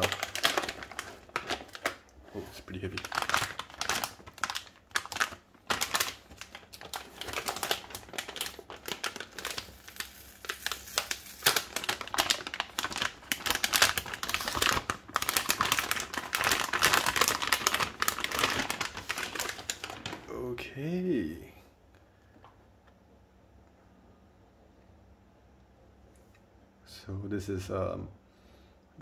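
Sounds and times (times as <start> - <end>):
plastic bag crinkling: 0.0 - 20.7.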